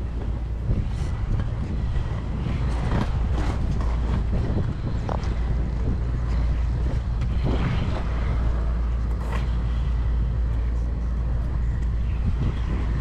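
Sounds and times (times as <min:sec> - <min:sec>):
skate wheels rolling on asphalt: 0:00.0 - 0:13.0.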